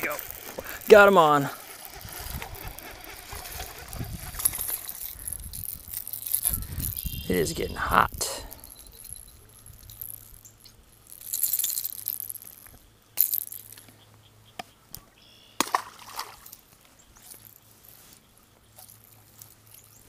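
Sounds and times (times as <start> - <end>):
rod and reel clicks: 0.0 - 7.6, 8.4 - 13.9, 16.2 - 18.0, 18.7 - 20.0
lure and tackle clinking: 0.0 - 13.9, 16.1 - 18.0, 18.7 - 20.0
water splash: 15.6 - 16.5.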